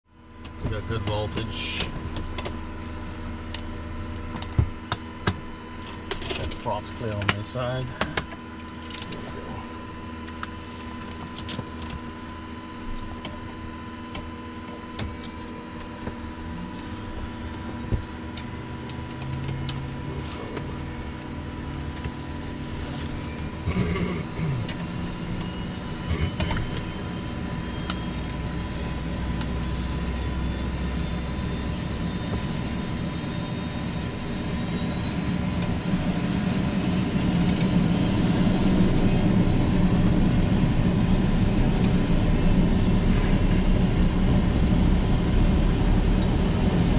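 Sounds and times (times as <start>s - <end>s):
electrical hum: 0.2s - 46.9s
turboprop engine spooling up: 16.7s - 46.9s.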